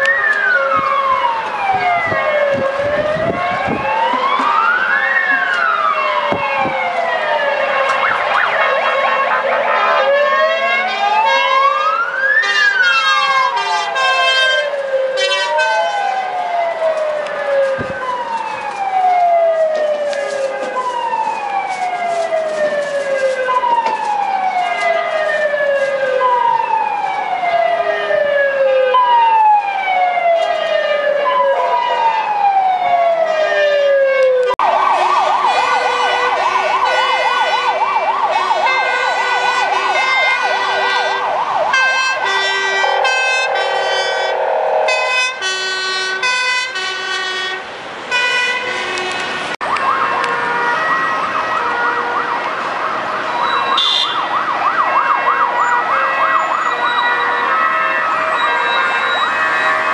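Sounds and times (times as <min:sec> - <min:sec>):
fast warbling siren yelp: 0:00.0 - 0:47.4
choppy siren tone: 0:00.0 - 0:47.6
city traffic: 0:00.0 - 0:59.9
emergency siren sweeping downward: 0:00.0 - 0:59.9.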